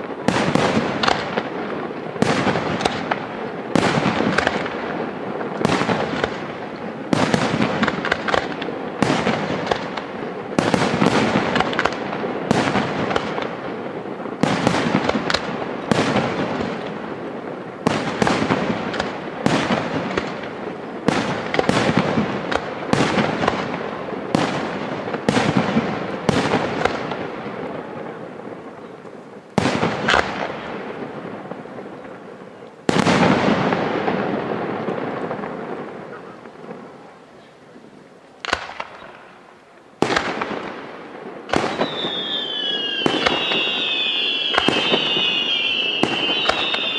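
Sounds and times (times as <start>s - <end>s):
firework shells bursting: 41.4s - 46.9s.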